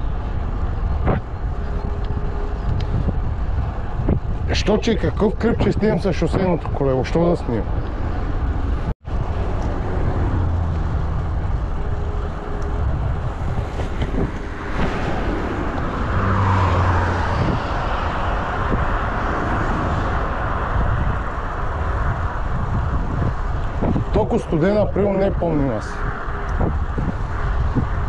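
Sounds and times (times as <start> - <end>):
wind and road noise: 0.0 - 28.0
motor vehicle passing: 7.6 - 24.1.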